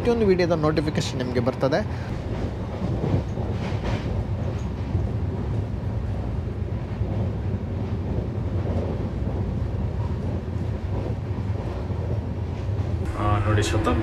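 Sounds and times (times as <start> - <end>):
train coach rumble: 0.0 - 14.0.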